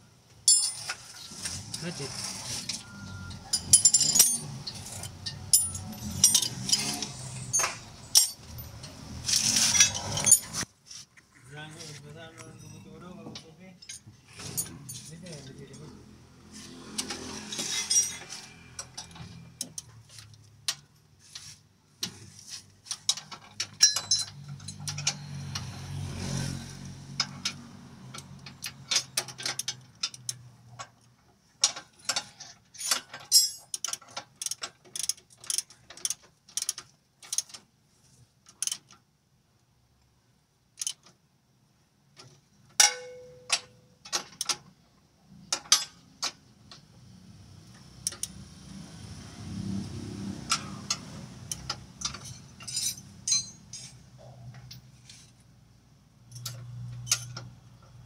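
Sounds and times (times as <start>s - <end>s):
metal tools clinking: 0.4s - 10.7s, 12.4s - 15.9s, 17.0s - 19.9s, 22.9s - 25.3s, 31.6s - 36.2s, 42.8s - 44.6s, 45.5s - 46.0s, 50.5s - 54.9s, 56.3s - 57.5s
ringing metal clink: 3.4s - 6.8s, 42.8s - 43.8s, 52.1s - 54.0s
ratchet wrench clicking: 38.5s - 38.9s, 40.8s - 41.1s, 48.0s - 48.4s.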